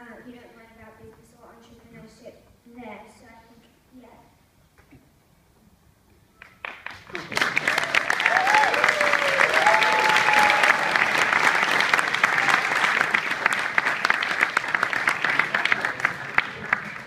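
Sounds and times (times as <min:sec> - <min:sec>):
audience applauding: 0:06.4 - 0:17.0
audience cheering: 0:07.2 - 0:17.0.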